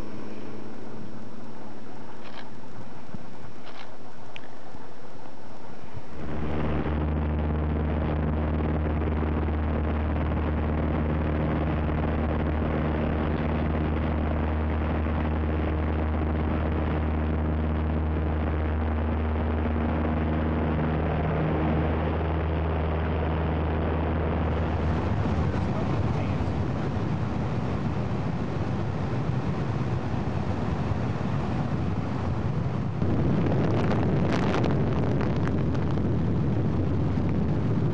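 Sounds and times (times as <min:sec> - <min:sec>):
engine humming steadily: 0:00.0 - 0:37.9.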